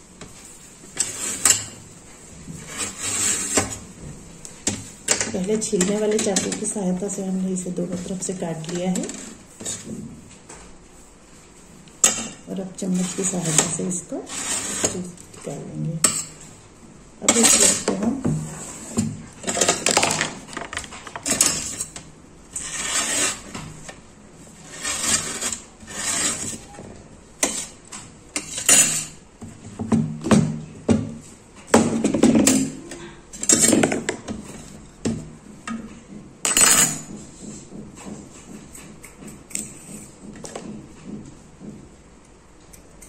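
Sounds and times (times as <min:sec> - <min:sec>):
knife scraping leaves: 0:01.0 - 0:01.6, 0:02.6 - 0:03.8, 0:12.9 - 0:15.1, 0:22.5 - 0:23.6, 0:24.6 - 0:26.7.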